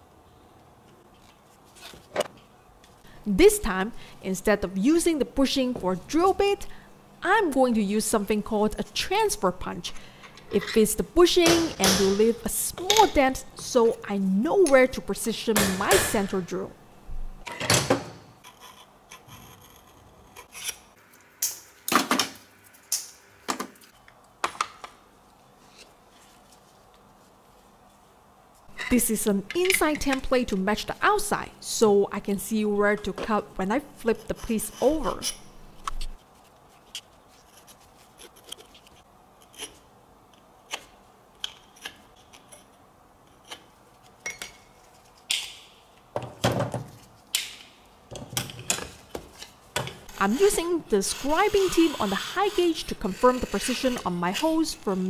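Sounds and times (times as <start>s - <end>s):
scriber scratching metal: 34.0s - 39.8s, 50.0s - 55.0s.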